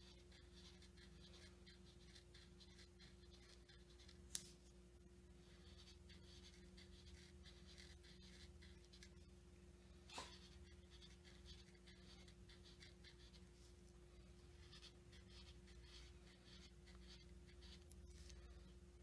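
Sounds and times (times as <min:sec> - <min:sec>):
marker scratching on paper: 0:00.0 - 0:04.6, 0:05.4 - 0:09.3, 0:10.1 - 0:18.6.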